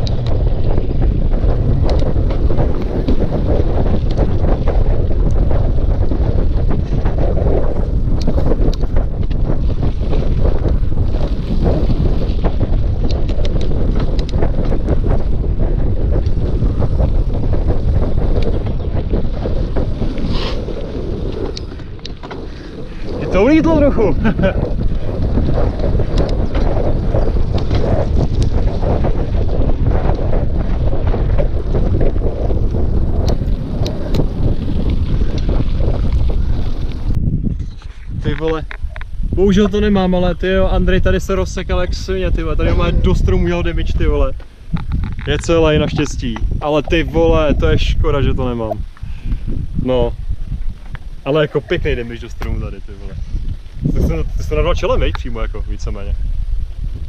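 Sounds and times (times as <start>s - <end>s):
bike clicks and rattles: 0.0s - 40.1s, 42.6s - 46.7s
wind buffeting microphone: 0.0s - 57.0s
sharp clicks and rattles: 21.3s - 36.2s, 41.3s - 47.5s.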